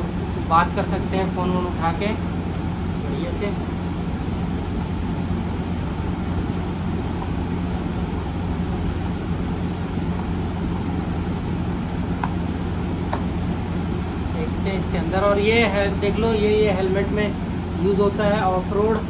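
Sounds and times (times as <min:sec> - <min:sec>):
low machine hum: 0:00.0 - 0:19.0.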